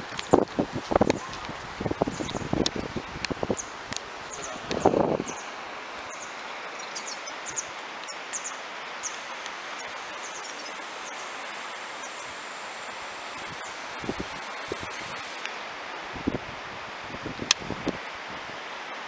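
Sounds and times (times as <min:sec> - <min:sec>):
steady outdoor hiss: 0:00.0 - 0:19.0
small birds chirping: 0:00.2 - 0:12.5, 0:13.3 - 0:15.4.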